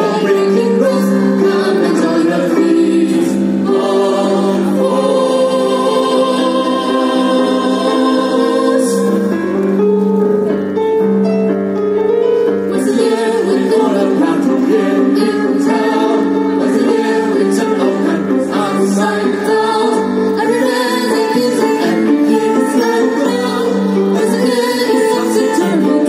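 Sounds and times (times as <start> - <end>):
live singing with keyboard and strings: 0.0 - 26.0.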